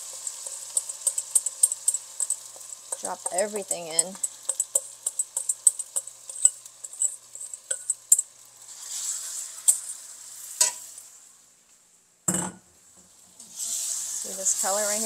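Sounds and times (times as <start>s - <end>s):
food sizzling in wok: 0.0s - 11.6s, 12.3s - 15.0s
spoon clinking on metal bowl: 0.7s - 8.2s.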